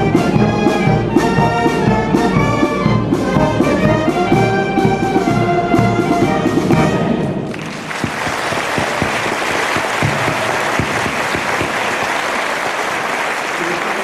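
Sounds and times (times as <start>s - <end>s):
wind band playing: 0.0s - 13.9s
audience applause: 7.5s - 14.0s.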